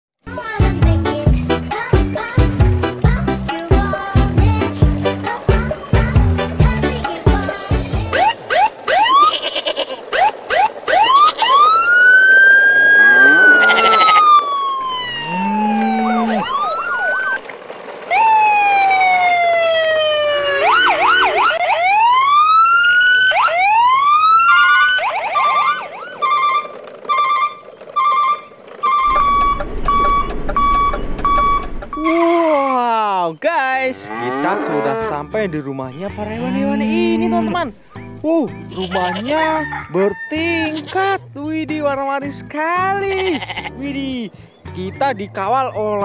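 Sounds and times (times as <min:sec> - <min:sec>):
siren pitch sweeps: 0:08.1 - 0:09.3, 0:10.1 - 0:17.4, 0:18.1 - 0:28.3, 0:28.9 - 0:32.3
pulsing alarm beep: 0:29.1 - 0:32.1.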